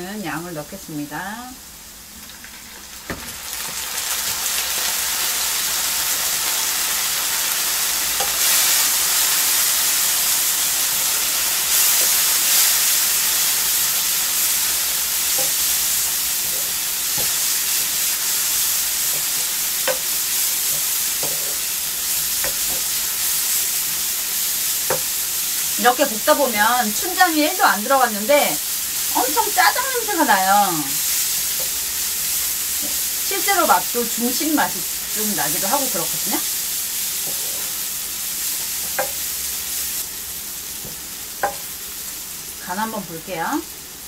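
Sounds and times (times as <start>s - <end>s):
onions sizzling in a frying pan: 0.0s - 44.0s
wooden spatula scraping a pan: 15.2s - 24.0s, 37.0s - 37.9s.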